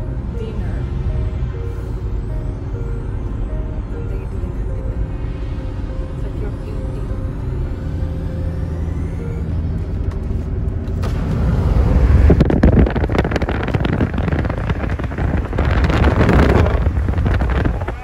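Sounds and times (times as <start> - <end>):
road and engine rumble: 0.0 - 18.0
wind buffeting microphone: 11.2 - 18.0.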